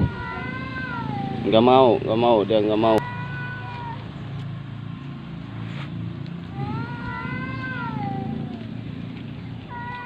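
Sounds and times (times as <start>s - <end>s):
cat yowling: 0.0s - 1.6s, 3.0s - 4.1s, 6.5s - 8.7s.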